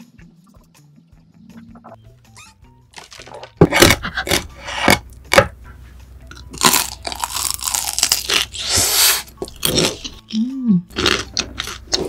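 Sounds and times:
crunching and chewing fried food: 6.3 - 12.0.

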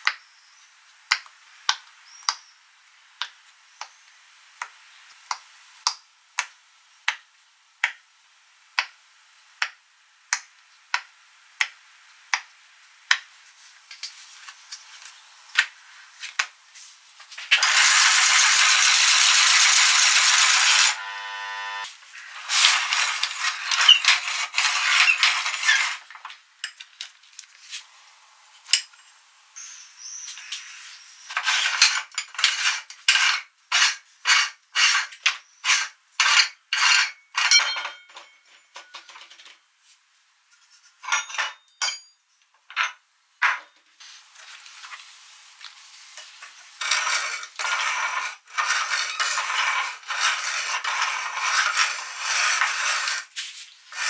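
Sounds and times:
meat grinder grinding: 17.5 - 26.1, 46.8 - 53.3
metal clinks and scrapes: 22.4 - 26.8, 35.7 - 39.2.

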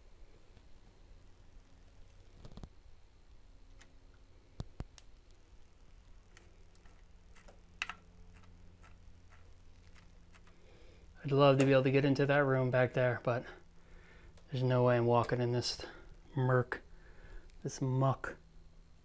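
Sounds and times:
faint clicks and taps: 6.0 - 10.6.

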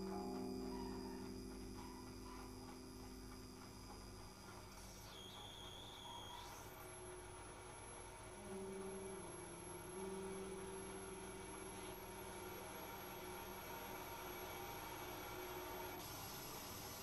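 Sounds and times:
high electronic tone: 0.0 - 6.8
low sustained electronic tones: 0.0 - 14.6
faint hiss: 0.0 - 17.0.

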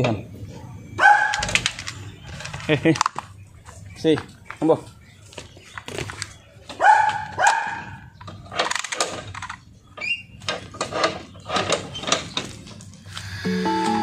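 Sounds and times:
dog barking: 1.0 - 1.5, 6.8 - 8.0.

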